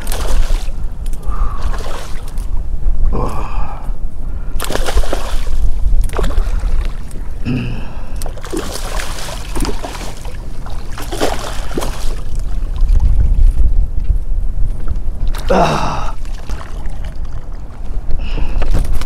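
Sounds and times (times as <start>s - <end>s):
fish splashing in water: 0.0s - 0.8s, 4.6s - 7.0s, 8.2s - 12.5s
wind rumble on microphone: 0.0s - 19.0s.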